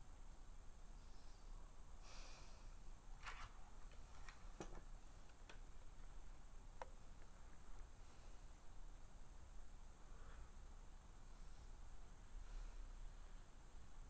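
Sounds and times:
soft rustle: 0:03.1 - 0:13.5.

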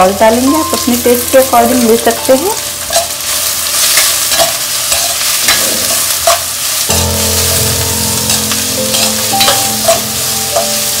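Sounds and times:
vegetables sizzling in oil: 0:00.0 - 0:11.0
spatula scraping a pan: 0:02.9 - 0:06.8, 0:08.3 - 0:11.0
steady low tones: 0:06.9 - 0:10.8.

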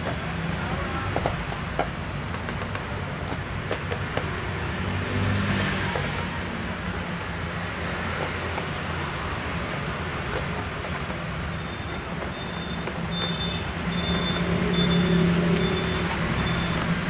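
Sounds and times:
clicks and taps on laptop: 0:01.0 - 0:04.4.

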